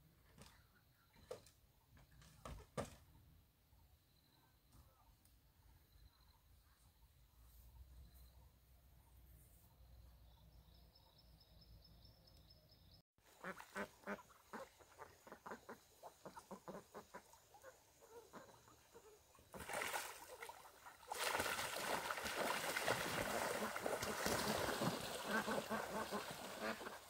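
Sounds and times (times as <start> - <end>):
ducks quacking: 13.3 - 19.2, 23.4 - 27.0.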